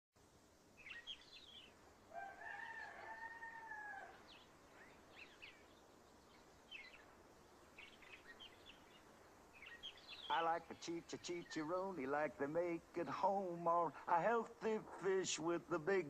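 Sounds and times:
faint birdsong chirps: 0:00.2 - 0:16.0
rooster crowing: 0:02.1 - 0:04.4.

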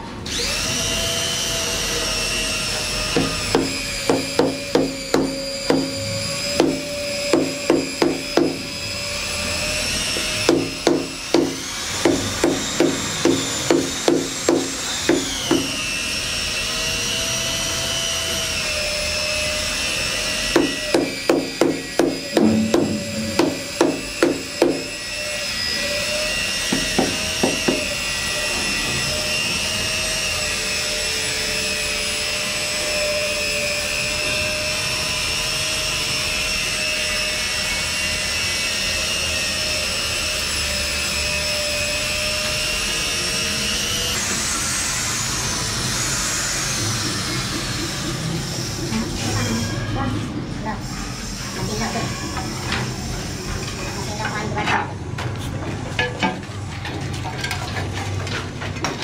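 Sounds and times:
steady high whine: 0:20.5 - 0:28.2.

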